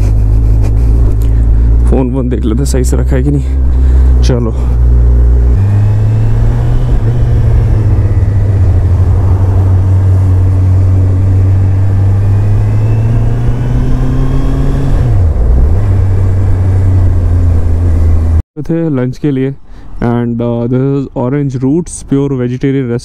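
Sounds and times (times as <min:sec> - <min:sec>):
motorcycle engine running: 0:00.0 - 0:18.4.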